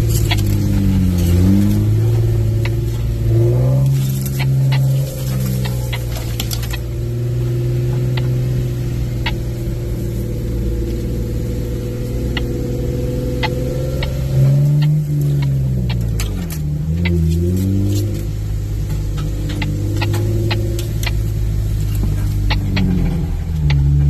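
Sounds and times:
vehicle engine from inside cab: 0.0s - 24.0s
sharp clicks and knocks: 13.4s - 24.0s.

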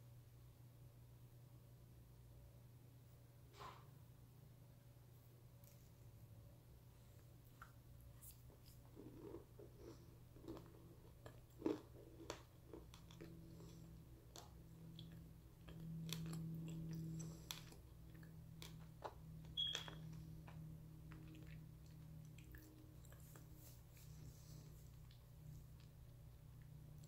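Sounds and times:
low steady hum: 0.0s - 27.0s
chewing with wet mouth clicks: 7.4s - 27.0s.

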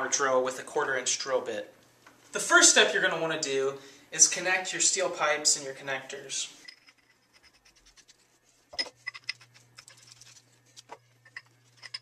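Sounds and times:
metal pipe threads ticking: 11.2s - 12.0s.

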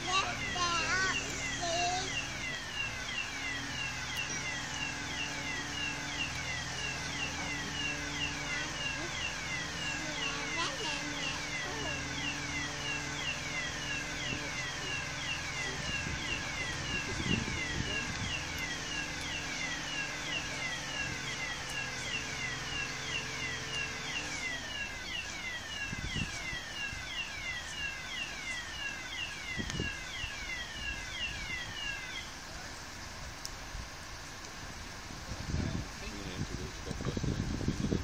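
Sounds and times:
chirping warning alarm: 0.0s - 32.8s
crane diesel engine running: 0.0s - 38.0s.

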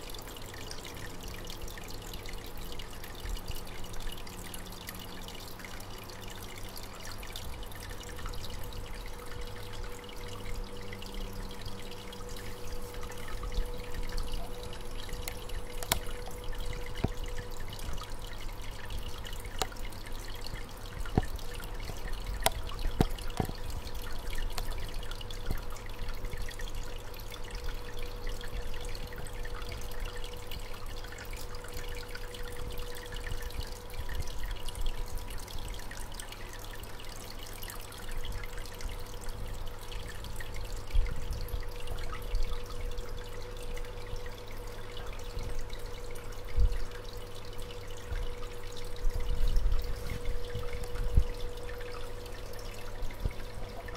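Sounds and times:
aquarium water trickling: 0.0s - 53.9s
steady hum: 0.0s - 53.9s
faint ticks: 15.1s - 18.1s.

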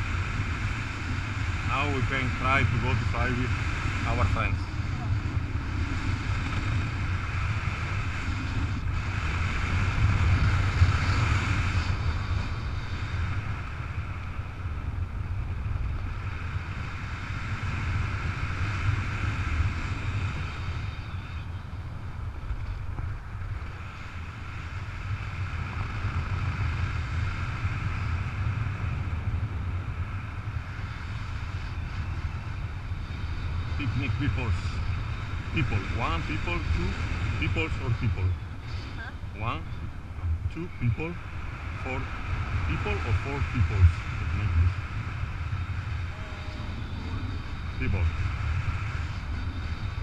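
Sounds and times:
wind rushing over microphone: 0.0s - 50.0s.

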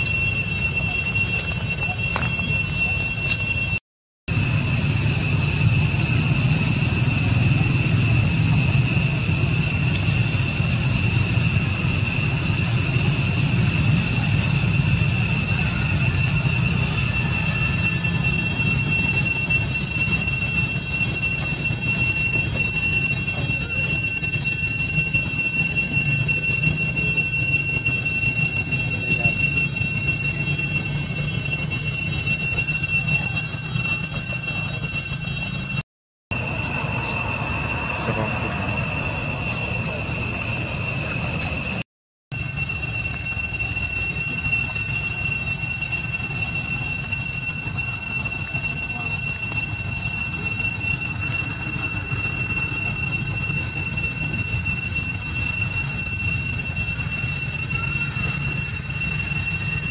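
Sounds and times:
cicadas droning: 0.0s - 41.8s, 42.4s - 59.9s
low rumbling hum: 4.3s - 19.3s.

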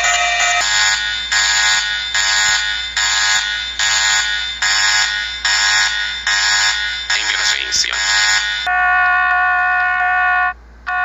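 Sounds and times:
buzzy alarm tone pulses: 0.0s - 8.8s.

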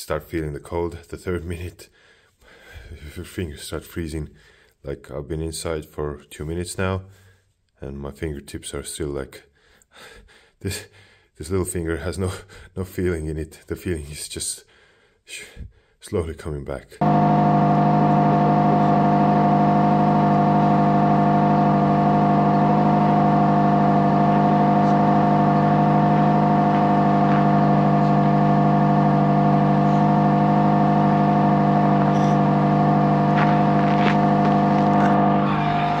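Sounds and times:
car engine idling: 17.0s - 36.0s.

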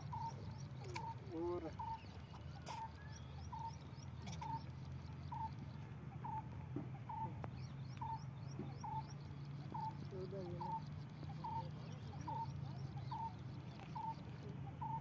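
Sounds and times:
bird repeating short call: 0.1s - 3.7s, 9.7s - 12.5s.

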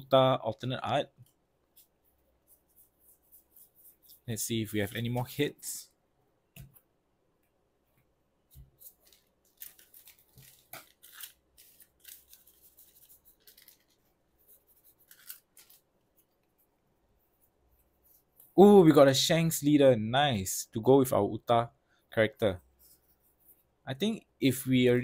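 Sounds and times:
foil packs and cards crinkling: 8.8s - 14.1s, 14.8s - 15.9s.

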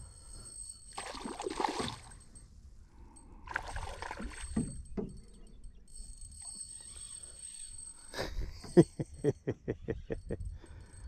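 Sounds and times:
fish splashing water: 1.0s - 2.1s, 3.5s - 4.6s.

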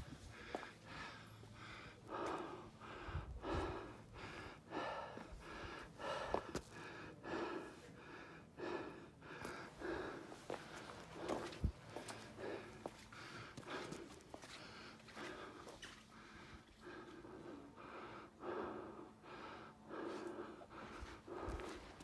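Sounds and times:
soft footsteps: 0.0s - 0.8s, 10.2s - 16.1s
heavy breathing: 0.0s - 22.0s.

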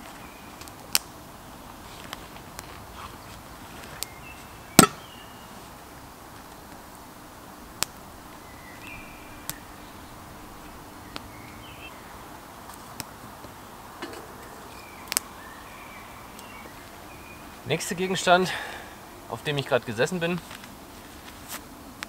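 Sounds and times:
quiet forest background: 0.0s - 22.0s
wood fire crackling: 0.0s - 22.0s
high bird chirps: 8.3s - 12.1s.

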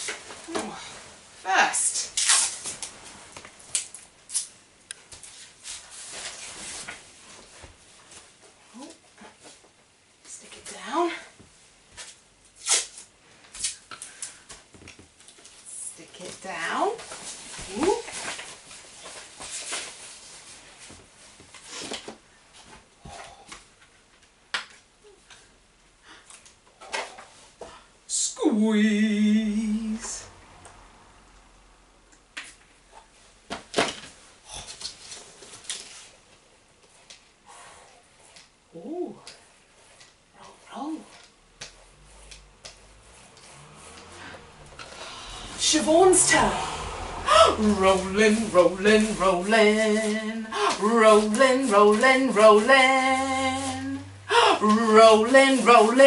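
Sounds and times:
sticky tape ripping: 2.1s - 2.9s, 3.7s - 4.5s, 12.6s - 13.8s
woman's drawn-out ooh: 45.2s - 47.8s.

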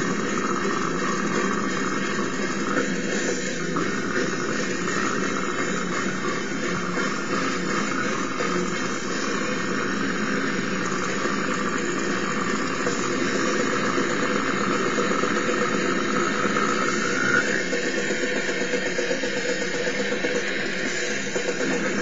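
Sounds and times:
distorted death metal instruments: 0.0s - 22.0s.

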